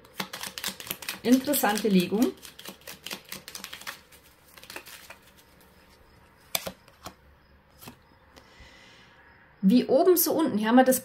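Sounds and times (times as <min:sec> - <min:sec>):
cards shuffling and clicking: 0:00.0 - 0:08.0.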